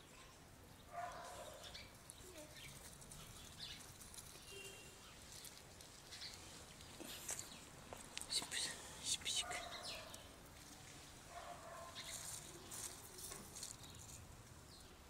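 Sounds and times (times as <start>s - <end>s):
soft ticks and rustles: 1.0s - 14.9s.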